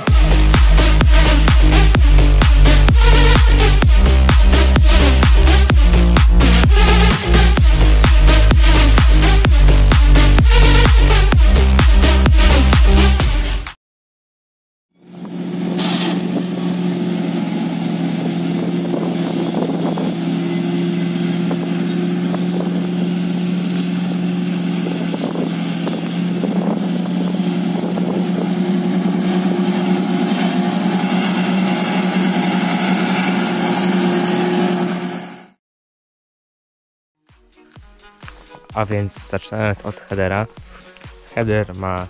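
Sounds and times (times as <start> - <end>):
diesel engine running: 0.0 - 13.7, 15.0 - 35.6, 37.5 - 42.0.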